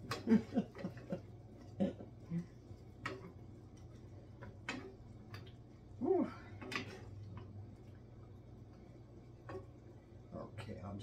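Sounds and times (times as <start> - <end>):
low steady hum: 0.0 - 11.0
wooden spoon scraping metal skillet: 6.3 - 7.6.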